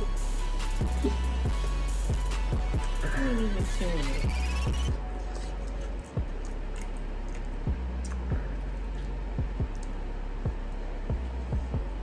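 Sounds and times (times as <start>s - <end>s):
hip-hop beat: 0.0s - 12.0s
booming kick drum: 9.4s - 9.8s, 10.4s - 12.0s.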